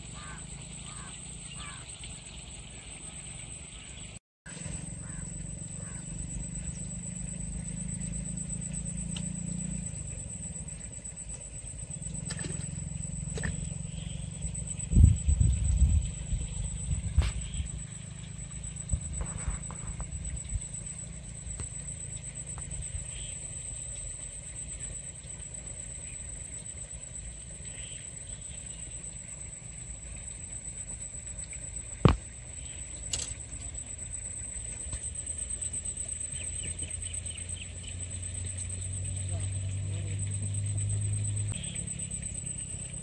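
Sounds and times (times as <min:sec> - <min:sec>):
high-pitched whine: 0:00.0 - 0:43.0
wind rumble on microphone: 0:14.7 - 0:17.7.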